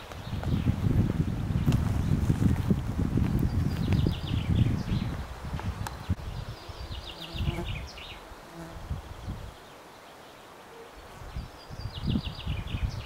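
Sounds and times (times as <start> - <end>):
flying insect buzzing: 6.5 - 9.0.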